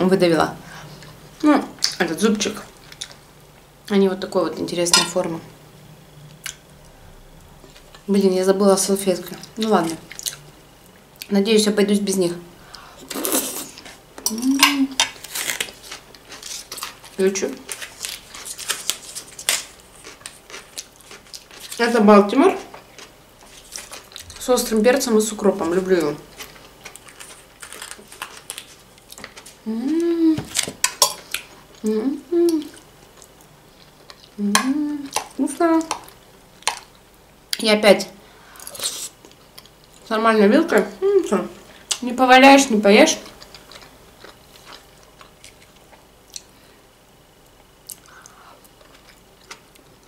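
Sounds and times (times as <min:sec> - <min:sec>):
faint chewing: 0:12.7 - 0:21.8, 0:22.5 - 0:24.4, 0:26.3 - 0:37.6, 0:43.2 - 0:46.8, 0:47.8 - 0:50.0
person humming: 0:29.6 - 0:30.6, 0:31.8 - 0:32.8, 0:34.4 - 0:35.1.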